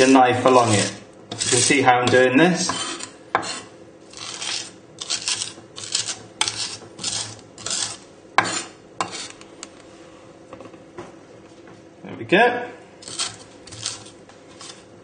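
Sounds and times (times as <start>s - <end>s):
knife crunching salt and garlic: 4.1s - 9.3s, 13.0s - 14.8s.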